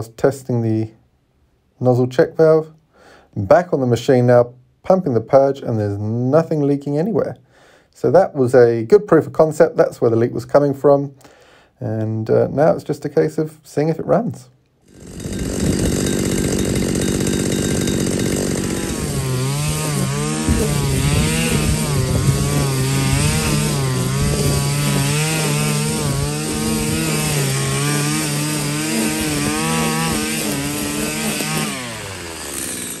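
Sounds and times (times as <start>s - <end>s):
string trimmer engine revving: 14.8s - 33.0s.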